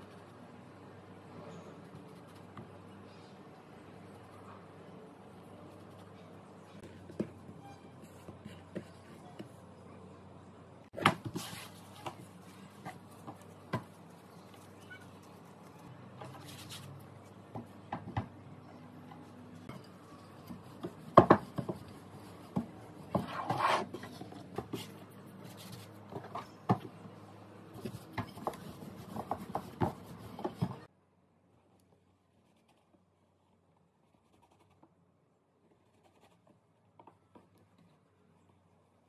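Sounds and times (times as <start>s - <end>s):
dough patting and rubbing: 27.7s - 30.9s.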